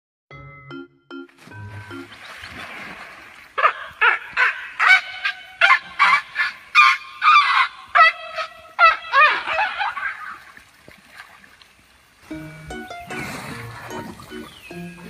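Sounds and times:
water splashing: 1.3 - 15.0
elephant trumpeting: 3.6 - 10.1.

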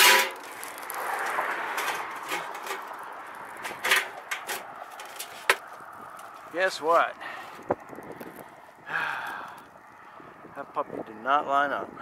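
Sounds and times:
sheet metal scraping: 0.0 - 0.8, 1.5 - 3.0, 3.6 - 5.6.

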